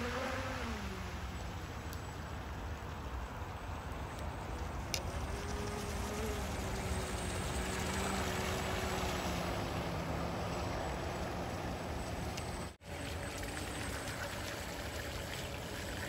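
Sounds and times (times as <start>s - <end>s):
wind and water noise: 0.0s - 16.0s
electric motor whine: 5.0s - 11.3s.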